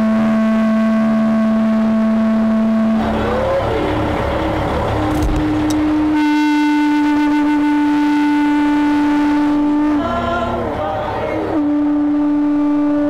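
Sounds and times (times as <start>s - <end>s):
long horn blasts: 0.0s - 13.0s
truck engine idling: 1.8s - 7.7s.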